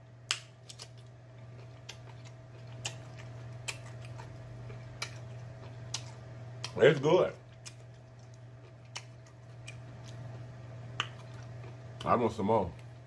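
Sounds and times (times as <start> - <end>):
steady low hum: 0.0 - 13.0
mouth chewing food: 0.3 - 13.0
lip-smacking clicks: 7.6 - 9.8, 10.9 - 12.1.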